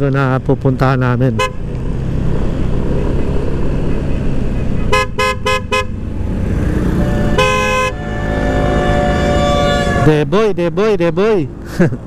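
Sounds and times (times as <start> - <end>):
motorcycle engine rumble: 0.0 - 10.3
wind: 0.0 - 12.0
motorcycle horn beeping: 4.9 - 6.0, 6.8 - 10.2.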